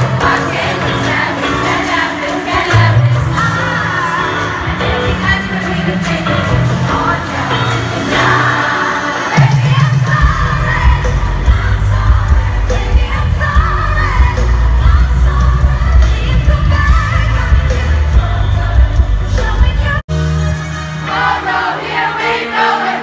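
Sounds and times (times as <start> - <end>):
choir-like backing vocals: 0.0 - 19.7, 20.8 - 23.0
amplified band with bass beat: 0.0 - 21.4
woman singing into microphone: 8.1 - 20.0.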